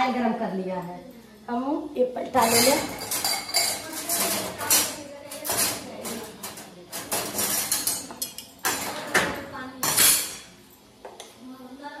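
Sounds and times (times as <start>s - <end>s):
metal spoon scraping steel bowl: 2.4s - 4.9s.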